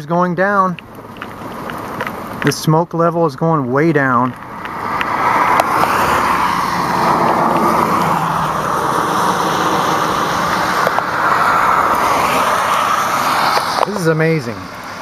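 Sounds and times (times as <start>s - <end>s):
low truck engine: 0.0s - 15.0s
tyres hissing on wet road: 4.4s - 15.0s.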